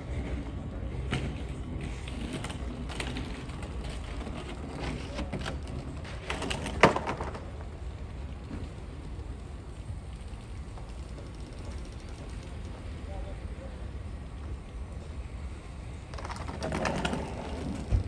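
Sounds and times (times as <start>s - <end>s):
scattered clicks: 10.1s - 13.0s.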